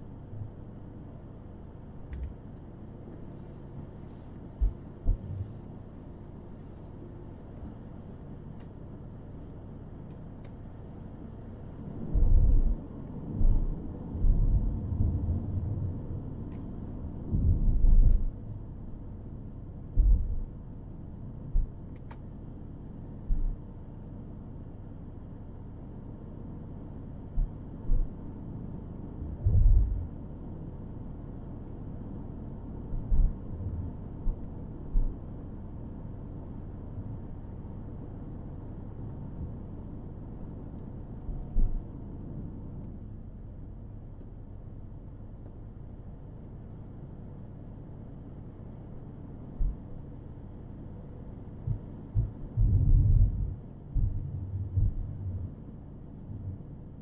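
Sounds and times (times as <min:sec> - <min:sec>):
car road and engine rumble: 0:00.0 - 0:57.0
low thumps and bumps: 0:51.7 - 0:55.4.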